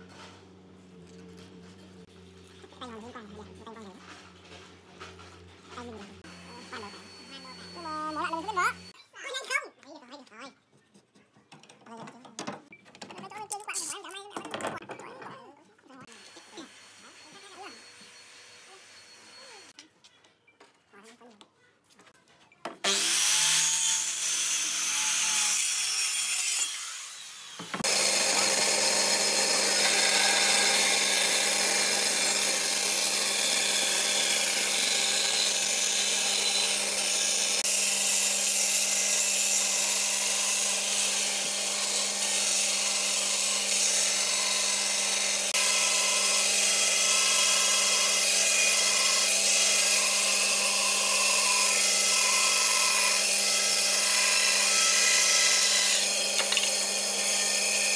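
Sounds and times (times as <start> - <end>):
circular saw cutting wood: 3.1 - 9.0, 16.0 - 19.8, 22.8 - 57.9
bandsaw sawing wood: 16.0 - 19.8, 22.8 - 57.9.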